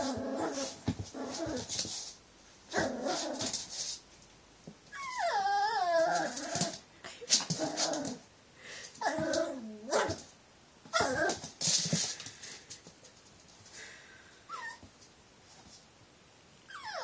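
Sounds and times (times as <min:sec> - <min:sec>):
puppy growling: 0:00.0 - 0:01.7, 0:02.7 - 0:03.6, 0:05.0 - 0:06.8, 0:07.4 - 0:08.2, 0:09.0 - 0:10.1
puppy whining: 0:04.9 - 0:06.8, 0:09.0 - 0:10.2, 0:10.9 - 0:11.5, 0:14.5 - 0:14.9, 0:16.7 - 0:17.0
puppy yipping: 0:16.7 - 0:17.0.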